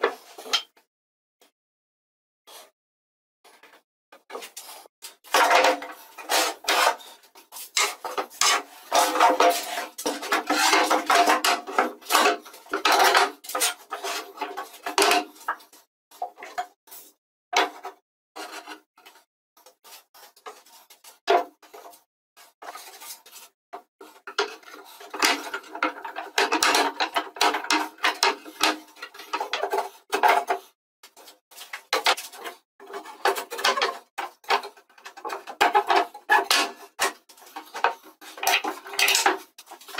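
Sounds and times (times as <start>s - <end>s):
wooden parts knocking and sliding: 5.3s - 16.7s, 24.1s - 30.6s, 31.2s - 39.9s.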